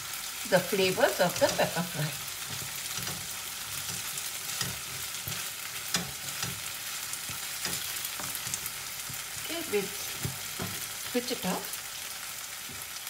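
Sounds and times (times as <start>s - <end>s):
potatoes sizzling in a pan: 0.0s - 13.0s
wooden spatula scraping a pan: 0.8s - 11.2s.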